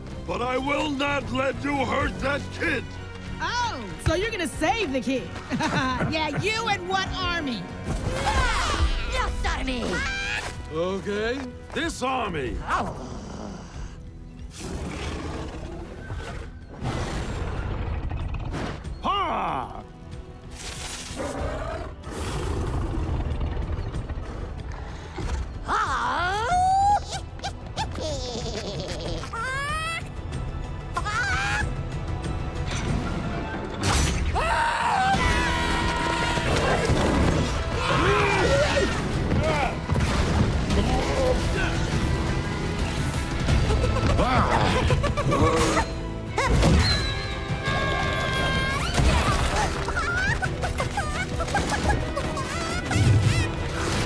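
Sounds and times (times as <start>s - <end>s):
film score music: 0.0s - 54.0s
voice-like cries: 30.9s - 31.7s, 47.3s - 53.7s.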